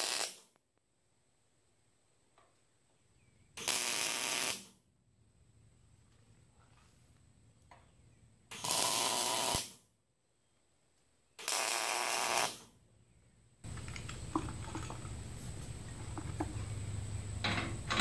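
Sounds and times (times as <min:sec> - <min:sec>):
welder arcing: 0:00.0 - 0:00.5, 0:03.6 - 0:04.8, 0:08.5 - 0:09.8, 0:11.4 - 0:12.7.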